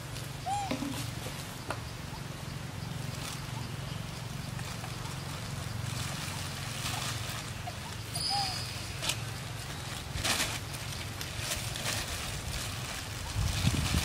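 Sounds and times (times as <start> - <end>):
plastic bag rustling: 4.6 - 14.0.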